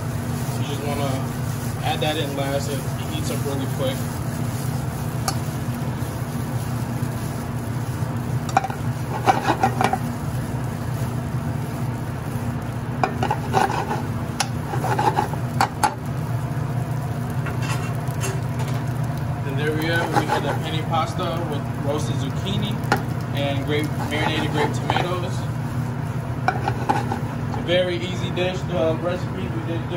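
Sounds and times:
pasta sizzling in a pan: 0.0s - 28.4s
pan scraping and clatter: 8.5s - 10.1s, 13.0s - 16.0s, 17.4s - 18.8s, 19.8s - 20.8s, 23.8s - 25.4s, 26.4s - 27.8s.

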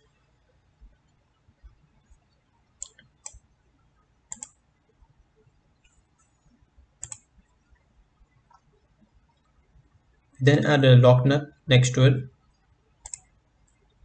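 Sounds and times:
computer mouse clicks: 2.8s - 3.4s, 4.3s - 4.6s, 7.0s - 7.3s, 13.0s - 13.9s.

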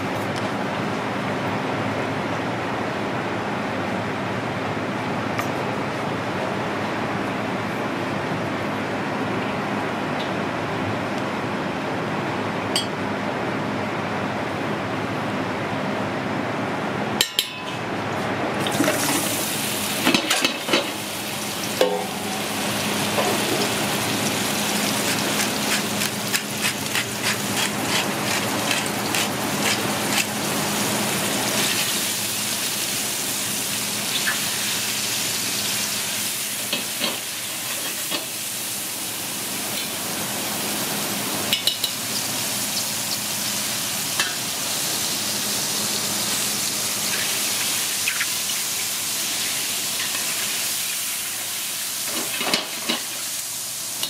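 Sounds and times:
meat sizzling in hot oil: 19.0s - 54.0s
metal tongs scraping a pot: 25.7s - 30.3s.

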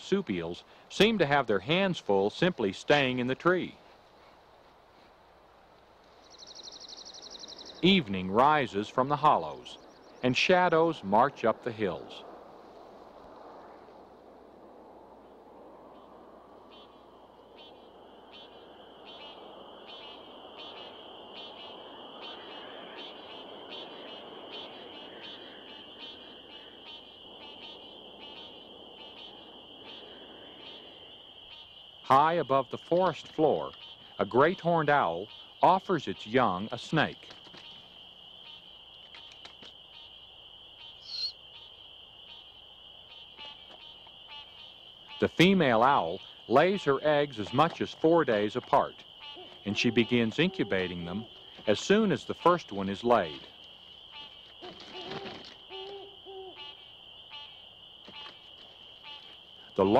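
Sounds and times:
frogs chorus: 0.0s - 59.9s
frog trilled calls: 16.7s - 32.3s, 33.4s - 59.9s.

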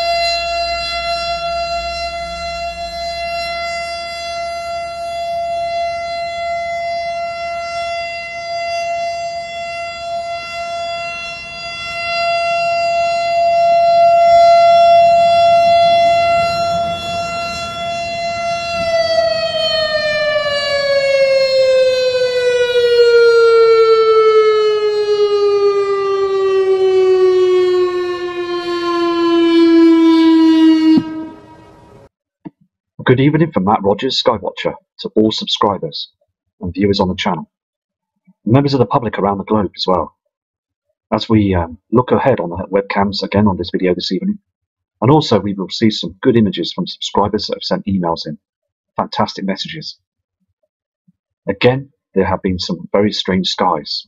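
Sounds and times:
warning siren wailing: 0.0s - 32.1s.

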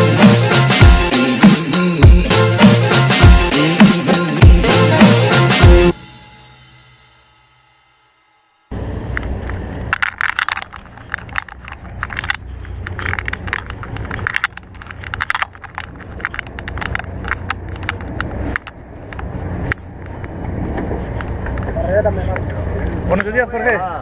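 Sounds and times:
camera handling clicks and rattles: 9.2s - 20.3s.

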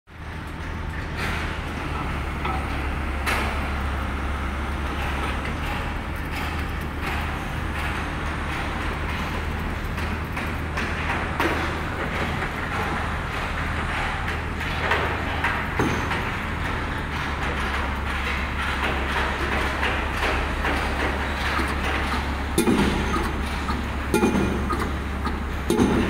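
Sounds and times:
diesel engine running: 0.1s - 26.0s
piling rig knocks: 17.2s - 26.0s.

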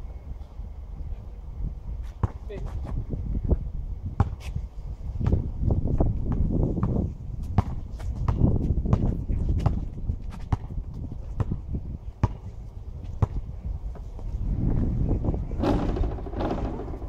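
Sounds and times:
basketball bouncing on asphalt: 2.2s - 2.7s, 4.2s - 4.4s, 5.2s - 14.0s
low rumble: 11.5s - 17.0s.

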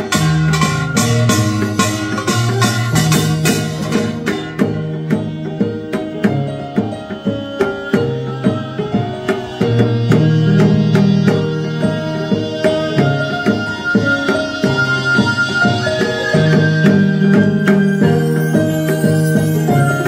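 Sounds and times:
drum strokes: 0.0s - 20.0s
sustained melodic tones: 0.0s - 20.0s.

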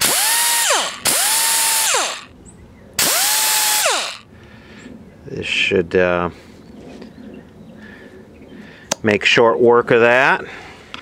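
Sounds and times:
die grinder motor whining: 0.0s - 2.3s, 3.0s - 4.2s.

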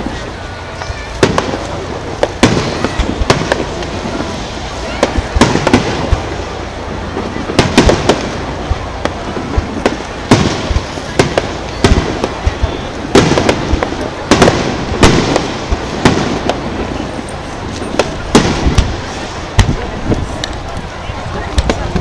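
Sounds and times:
firework shells bursting: 1.1s - 20.9s.

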